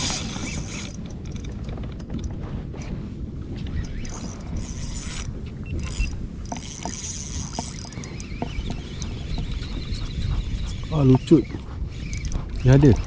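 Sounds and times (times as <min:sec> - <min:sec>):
wind buffeting microphone: 0:00.0 - 0:13.0
small clicks and knocks: 0:03.6 - 0:09.7.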